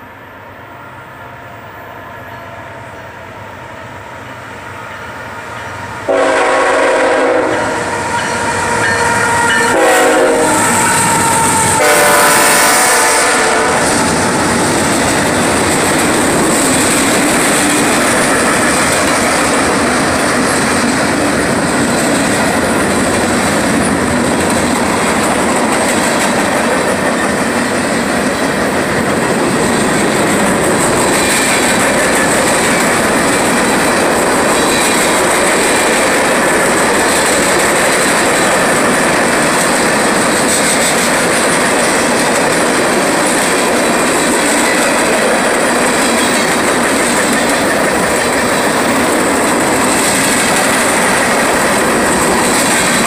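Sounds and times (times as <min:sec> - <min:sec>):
diesel locomotive rumbling: 0:00.0 - 0:53.0
train wheels on rails: 0:00.0 - 0:53.0
train air horn blasts: 0:06.0 - 0:14.2.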